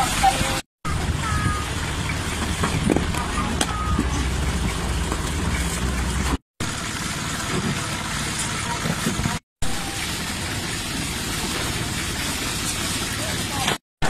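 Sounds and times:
boat motor running: 0:00.0 - 0:13.8
wind: 0:00.0 - 0:13.8
sea noise: 0:09.6 - 0:13.8.

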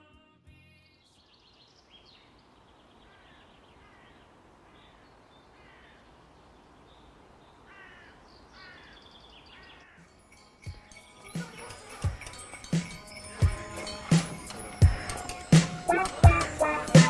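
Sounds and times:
faint steady hiss: 0:01.1 - 0:17.0
crows cawing: 0:03.0 - 0:06.3, 0:07.6 - 0:10.1, 0:13.1 - 0:17.0.

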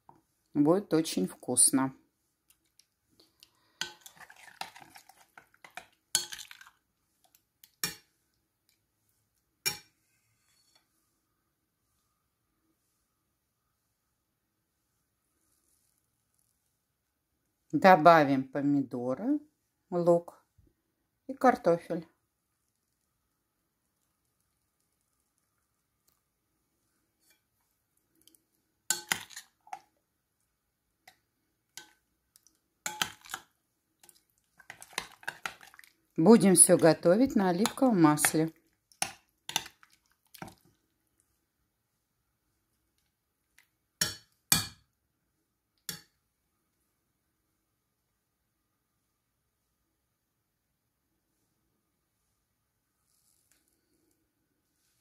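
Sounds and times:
metal spoon scraping and clinking bowl: 0:03.8 - 0:06.7, 0:07.8 - 0:08.1, 0:28.9 - 0:29.8, 0:31.8 - 0:32.0, 0:32.8 - 0:35.9, 0:37.2 - 0:40.6
metal spoon clinking on bowl: 0:05.7 - 0:06.6, 0:28.9 - 0:29.5, 0:32.9 - 0:33.4.

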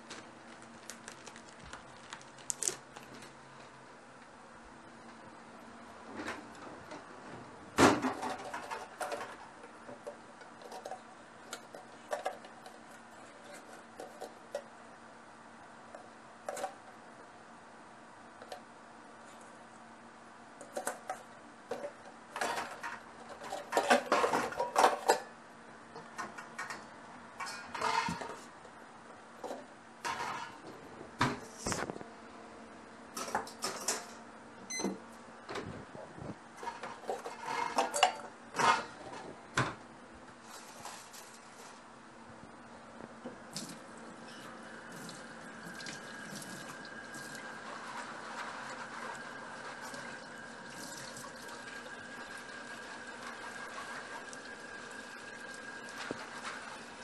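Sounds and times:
faint steady hum: 0:00.0 - 0:57.0
dishes and pots clattering: 0:07.8 - 0:11.0, 0:21.7 - 0:25.3, 0:27.4 - 0:28.4, 0:29.4 - 0:30.6, 0:36.6 - 0:39.2.

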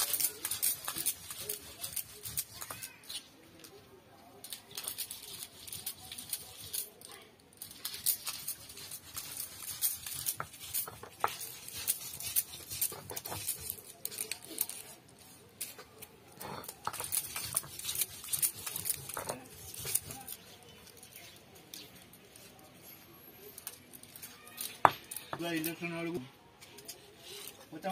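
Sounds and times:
stone grinding crunching and scraping: 0:00.0 - 0:03.3, 0:07.6 - 0:22.8, 0:23.5 - 0:26.1.

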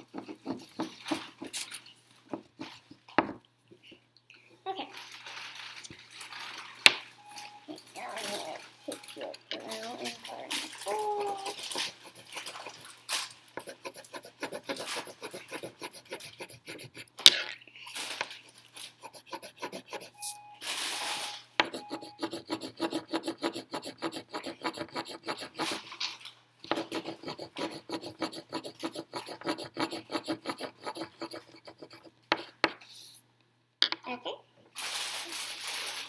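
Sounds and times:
pencil scribbling on paper: 0:00.0 - 0:01.7, 0:08.2 - 0:13.0, 0:13.6 - 0:17.2, 0:18.4 - 0:20.4, 0:21.1 - 0:25.9, 0:26.7 - 0:33.2.

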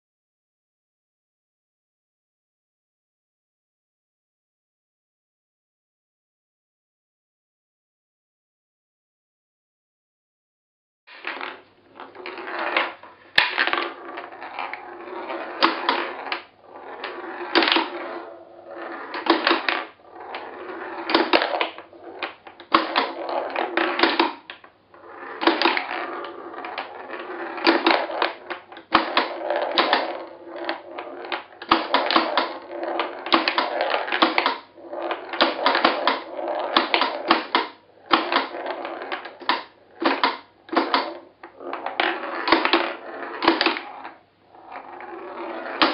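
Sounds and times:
steel ball rolling and rattling: 0:11.2 - 0:45.9.

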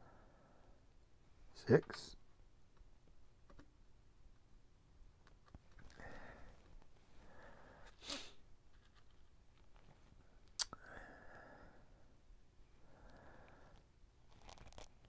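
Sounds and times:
person breathing through nose: 0:05.9 - 0:06.6, 0:07.2 - 0:08.4
person sniffing: 0:07.6 - 0:08.4.

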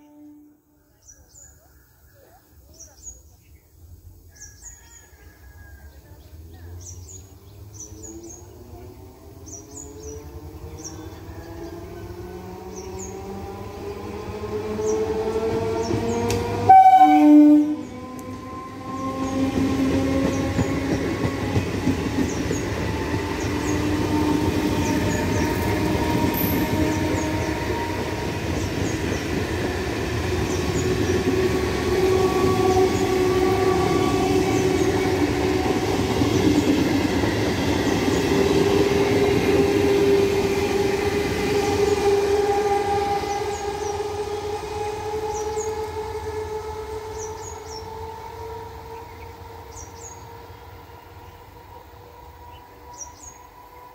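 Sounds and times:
train horn: 0:00.0 - 0:00.9, 0:10.8 - 0:53.9
train passing with rumble: 0:02.1 - 0:53.9
traction motors whining: 0:17.8 - 0:50.7.

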